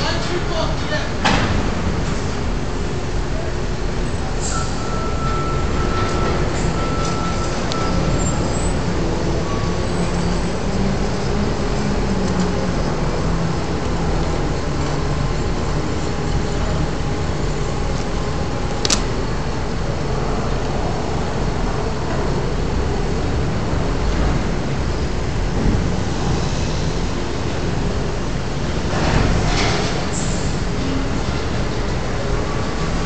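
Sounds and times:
heavy machinery drone: 0:00.0 - 0:33.0
sharp click: 0:18.8 - 0:19.1.

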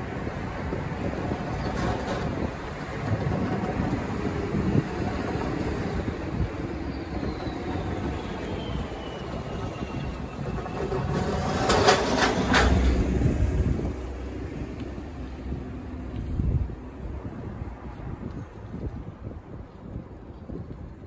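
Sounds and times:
vehicles driving over rail crossing: 0:00.0 - 0:17.8
trailer wheels banging over rails: 0:01.0 - 0:13.9.

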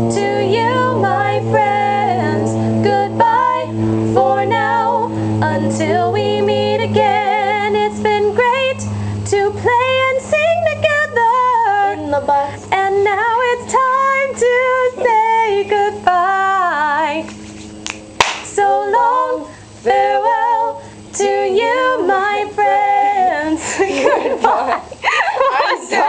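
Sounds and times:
woman singing slow melody: 0:00.0 - 0:17.3, 0:18.5 - 0:24.1
sharp click: 0:17.3 - 0:18.6.

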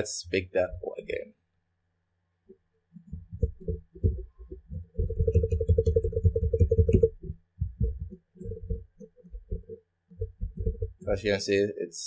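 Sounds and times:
dull low thumps: 0:03.1 - 0:11.2.

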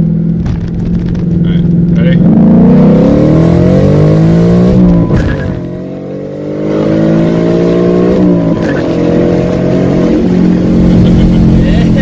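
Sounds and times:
car engine accelerating hard: 0:00.0 - 0:12.0.

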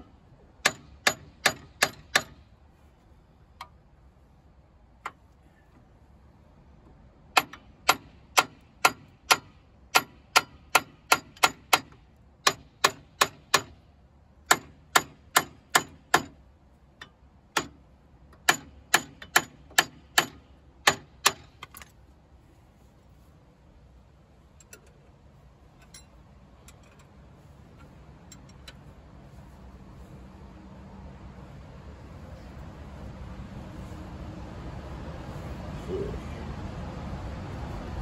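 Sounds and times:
hammer striking metal pipe: 0:00.6 - 0:02.4, 0:07.4 - 0:13.8, 0:14.5 - 0:16.4, 0:18.4 - 0:21.6.

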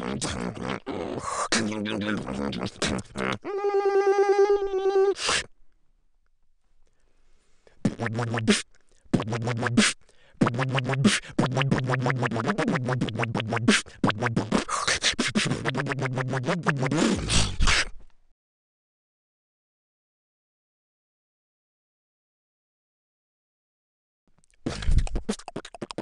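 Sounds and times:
person beatboxing: 0:00.0 - 0:03.4, 0:07.8 - 0:17.9, 0:24.6 - 0:26.0.

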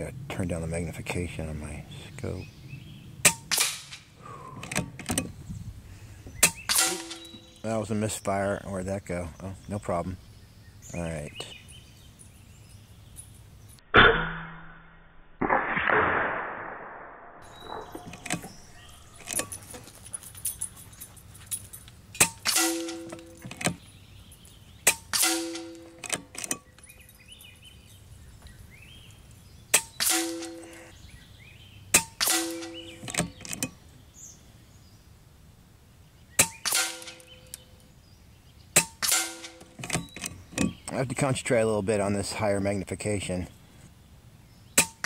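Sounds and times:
air rifle cracks: 0:03.2 - 0:05.2
pellet striking metal clang: 0:06.4 - 0:07.5, 0:22.2 - 0:23.8, 0:24.8 - 0:26.6, 0:29.7 - 0:30.9, 0:31.9 - 0:33.4, 0:36.4 - 0:37.6, 0:38.8 - 0:40.0, 0:44.8 - 0:45.0.

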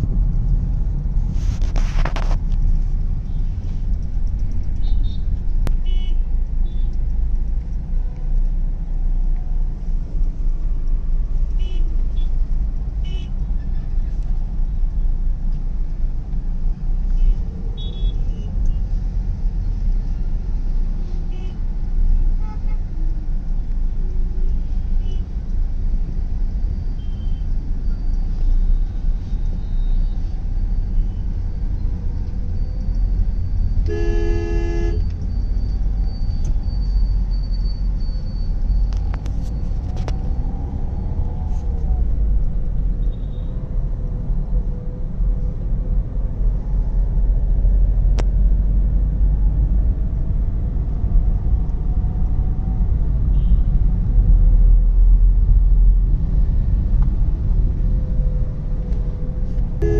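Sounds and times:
road and engine rumble: 0:00.0 - 0:59.9
vehicle horn honking: 0:33.9 - 0:35.1.

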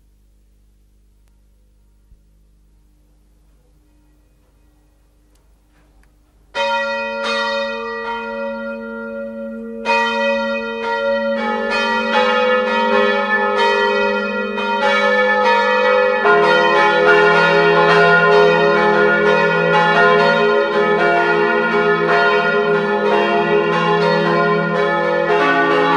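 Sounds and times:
church bells ringing: 0:06.5 - 0:25.9.

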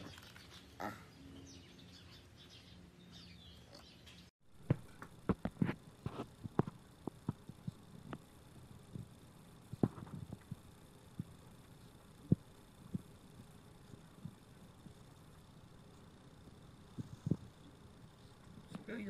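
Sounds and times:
birds chirping faintly: 0:00.0 - 0:05.0.

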